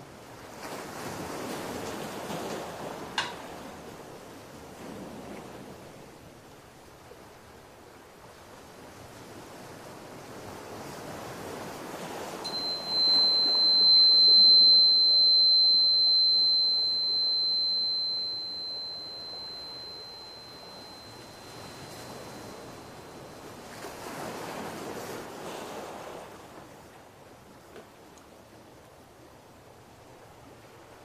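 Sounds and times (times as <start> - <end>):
tuning fork ringing: 12.4 - 25.0.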